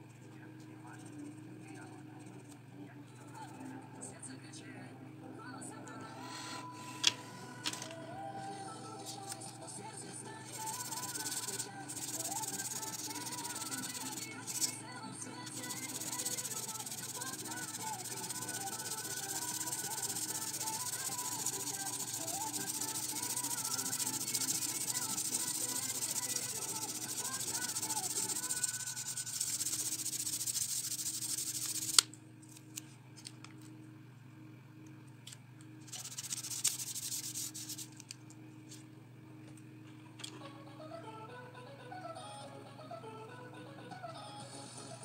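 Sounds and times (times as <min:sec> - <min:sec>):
tissue rubbing on paper: 0:10.5 - 0:14.8, 0:15.5 - 0:32.0, 0:35.9 - 0:37.9.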